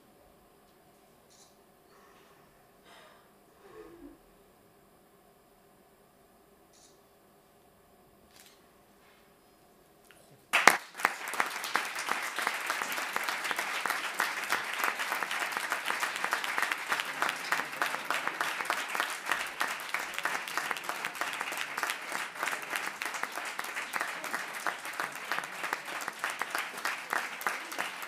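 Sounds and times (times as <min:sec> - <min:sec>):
audience applauding: 0:10.5 - 0:28.0.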